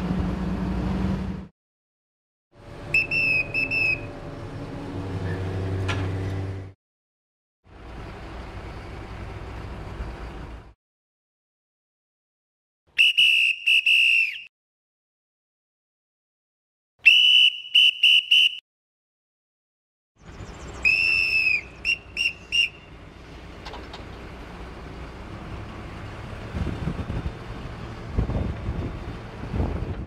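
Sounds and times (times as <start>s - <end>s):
crane engine running: 0.0s - 1.5s, 2.6s - 6.7s, 7.7s - 10.8s, 20.2s - 30.0s
shrill whistle blasts: 2.9s - 4.1s, 13.0s - 14.5s, 17.0s - 18.6s, 20.8s - 22.9s.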